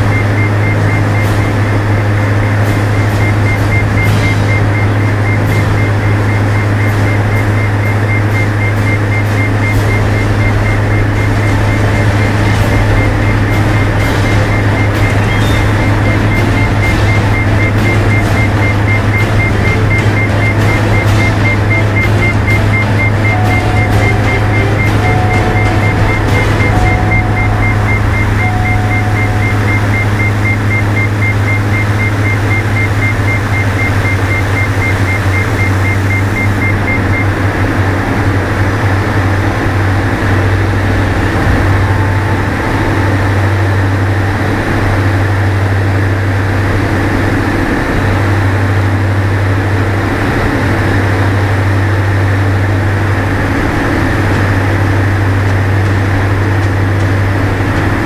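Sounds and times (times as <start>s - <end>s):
propeller engines droning: 0.0s - 58.0s.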